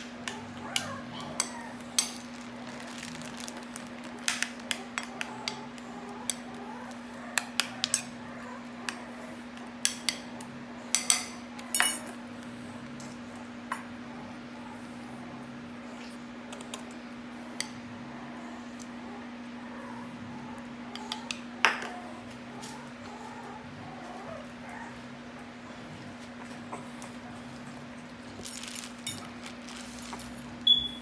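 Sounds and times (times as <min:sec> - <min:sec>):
plastic bag crinkling: 0:00.9 - 0:05.4, 0:28.1 - 0:30.7.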